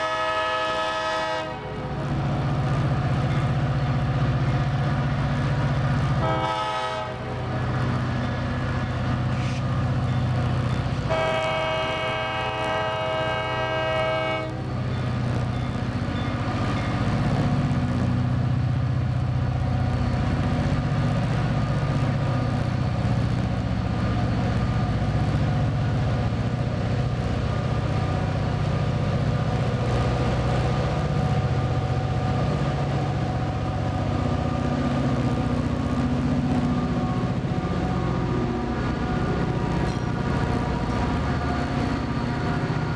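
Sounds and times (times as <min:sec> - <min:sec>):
locomotive horn blast: 0:00.0 - 0:01.8, 0:06.2 - 0:07.4, 0:11.1 - 0:14.6
diesel locomotive engine drone: 0:00.0 - 0:42.9.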